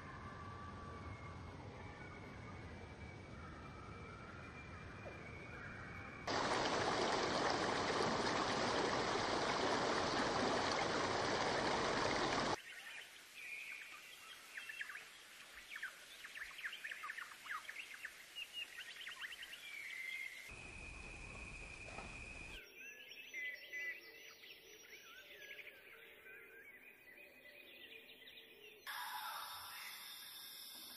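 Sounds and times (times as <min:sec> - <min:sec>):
small birds chirping: 0:01.9 - 0:23.3
rushing water: 0:06.3 - 0:13.5
faint high whine: 0:20.5 - 0:22.6.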